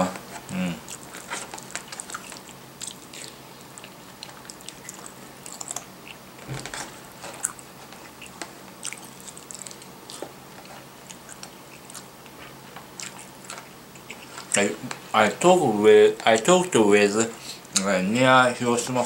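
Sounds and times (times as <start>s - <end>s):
person chewing food: 0.2s - 15.0s.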